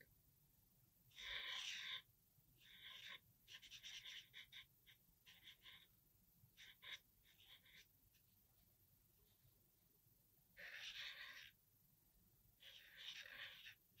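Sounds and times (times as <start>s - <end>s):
marker scratching on paper: 1.2s - 2.0s, 2.7s - 5.9s, 6.6s - 7.9s, 10.6s - 11.6s, 12.6s - 14.0s.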